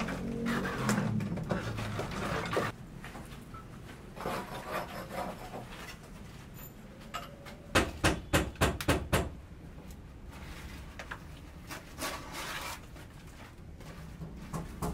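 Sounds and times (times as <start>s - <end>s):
hand tool scraping concrete block: 0.0s - 2.8s, 4.2s - 6.0s, 11.8s - 13.0s.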